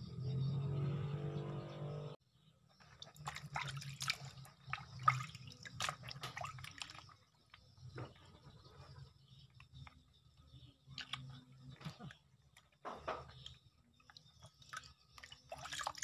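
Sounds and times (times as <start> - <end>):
water splashing in a plastic basin: 2.8 - 8.4, 10.8 - 16.0.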